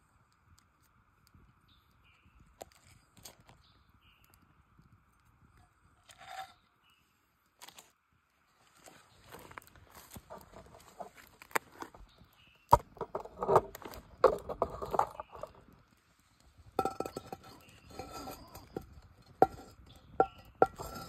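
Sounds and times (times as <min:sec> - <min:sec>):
utensils clinking on cookware: 0:16.8 - 0:21.0.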